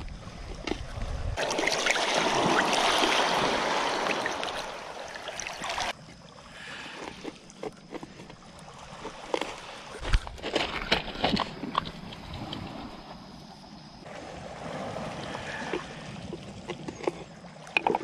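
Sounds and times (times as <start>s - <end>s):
rush of water: 0.0s - 6.0s, 14.1s - 18.0s.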